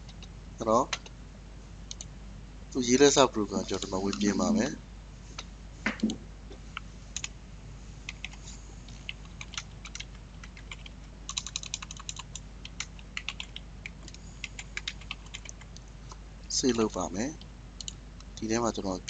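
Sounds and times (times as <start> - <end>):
computer keyboard typing: 0.0 - 0.3, 8.1 - 8.4, 9.0 - 15.6
faint low hum: 0.0 - 19.0.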